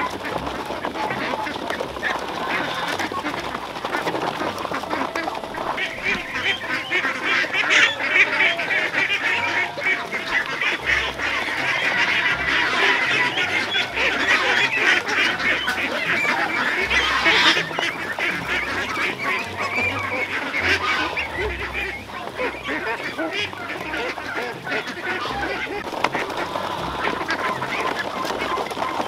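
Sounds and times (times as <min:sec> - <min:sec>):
bills pecking on metal sheets: 0:00.0 - 0:20.6
ducks calling and chattering: 0:00.0 - 0:29.0.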